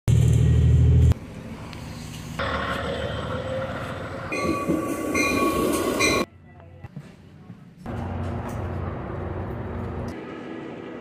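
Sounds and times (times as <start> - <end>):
train running: 0.1 - 6.3, 7.1 - 11.0
loud low hum inside train: 0.1 - 11.0
high ringing tones: 4.3 - 6.3.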